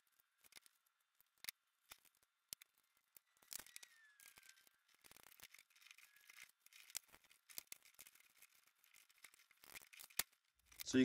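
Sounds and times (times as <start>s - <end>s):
small metal clicks and scrapes: 0.0s - 11.0s.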